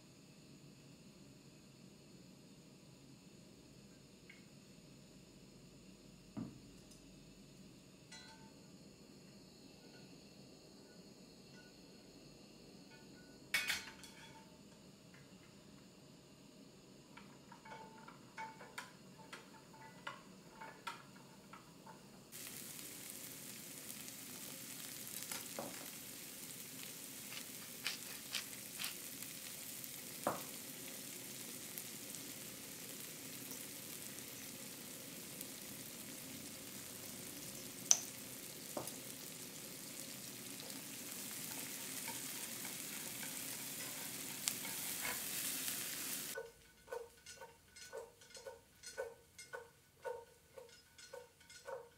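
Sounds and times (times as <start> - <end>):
utensils tapping pan: 13.6 - 14.5, 17.1 - 32.3, 37.6 - 51.9
vegetables sizzling in butter: 16.9 - 51.9.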